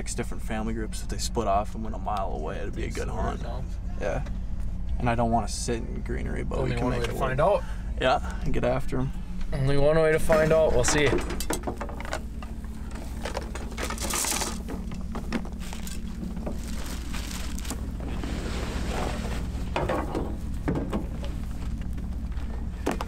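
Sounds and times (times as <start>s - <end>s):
steady low hum: 0.0s - 23.0s
bags rustling: 12.9s - 20.6s.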